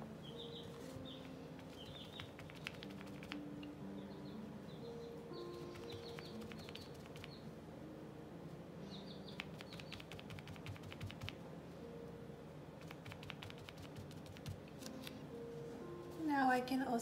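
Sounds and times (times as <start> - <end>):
fingertip tapping paint on paper: 1.6 - 3.4, 5.6 - 7.4, 9.3 - 11.4, 12.8 - 14.9.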